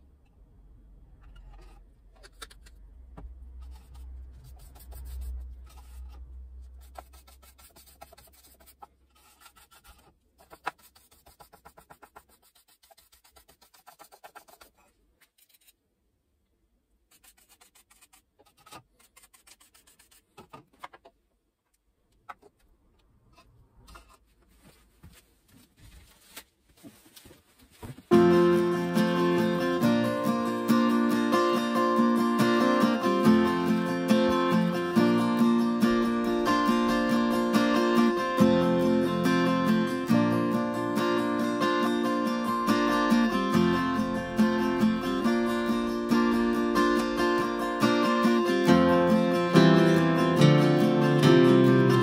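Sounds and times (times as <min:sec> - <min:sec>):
brush scraping on wood: 0:03.6 - 0:15.7, 0:17.1 - 0:20.5.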